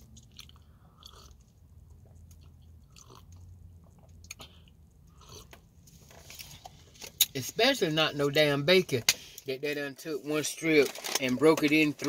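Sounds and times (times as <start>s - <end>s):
low steady hum: 0.0s - 12.0s
person sipping and swallowing: 0.3s - 1.4s, 2.9s - 5.6s.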